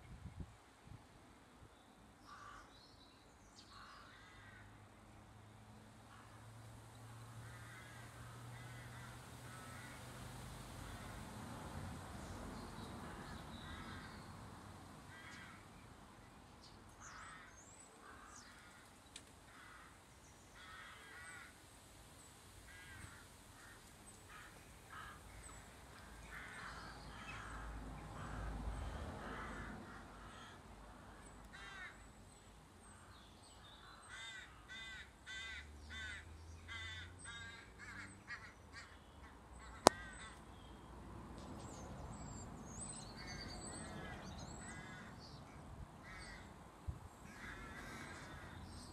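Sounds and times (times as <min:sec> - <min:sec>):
flock of starlings chattering: 0:42.8 - 0:45.3, 0:47.3 - 0:48.9.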